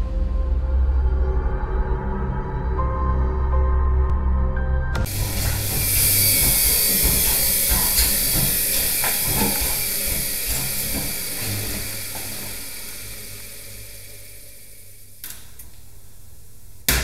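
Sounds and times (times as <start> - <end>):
steady high hiss: 5.1 - 17.0.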